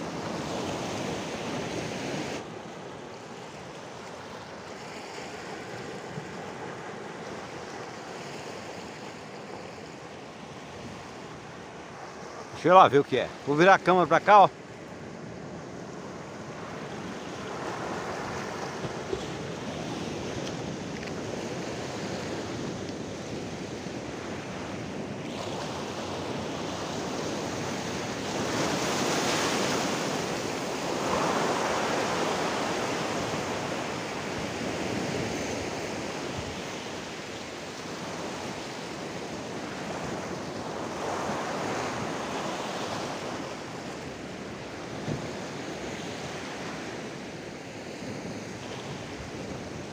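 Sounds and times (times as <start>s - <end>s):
sea waves breaking on rocks: 15.3s - 46.9s.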